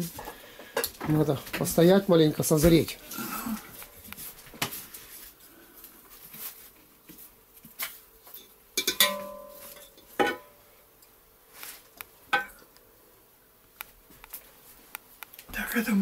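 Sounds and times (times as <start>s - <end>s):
spoon clinking against pot: 8.4s - 10.5s.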